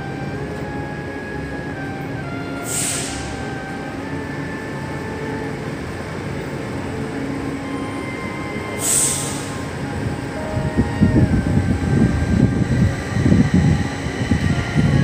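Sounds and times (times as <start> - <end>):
faint hums shifting in pitch: 0.0 - 15.0
mechanical rumble: 0.0 - 15.0
brief hiss: 2.6 - 3.4, 8.8 - 9.5.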